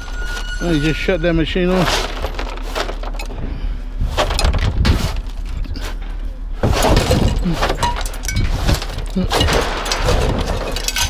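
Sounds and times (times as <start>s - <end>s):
small metal pieces clinking: 0.0s - 3.4s, 6.9s - 11.0s
broom scraping truck bed: 0.0s - 11.0s
steady low hum: 1.2s - 11.0s.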